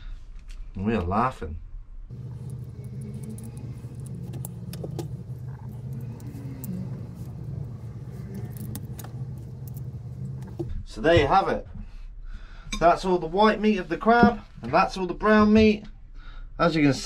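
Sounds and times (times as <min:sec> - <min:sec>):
low engine rumble: 0:02.1 - 0:10.7.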